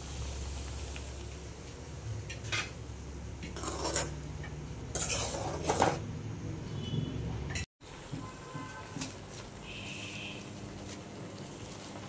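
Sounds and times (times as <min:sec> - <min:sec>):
ladle scraping a metal pot: 0:03.6 - 0:04.2, 0:04.9 - 0:06.1.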